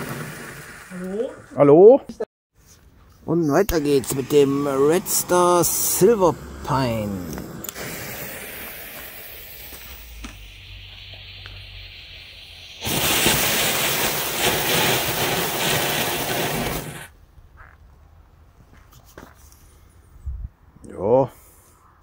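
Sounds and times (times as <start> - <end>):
firework fountain hissing: 0.0 - 1.6, 3.7 - 17.1
fuse fizzing: 3.7 - 17.1.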